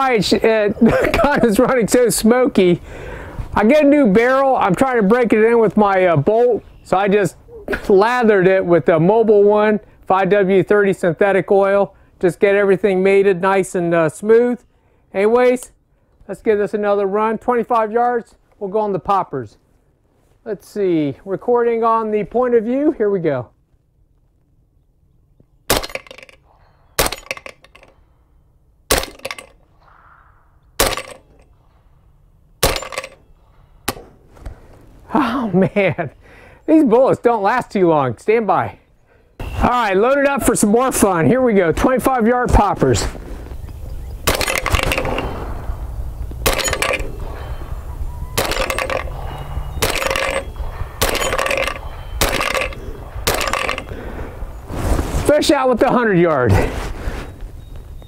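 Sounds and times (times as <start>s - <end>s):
suppressed gunshots: 25.7s - 26.4s, 28.9s - 31.4s, 32.6s - 33.2s, 44.2s - 45.7s, 46.4s - 47.4s, 48.3s - 49.2s, 49.8s - 53.9s.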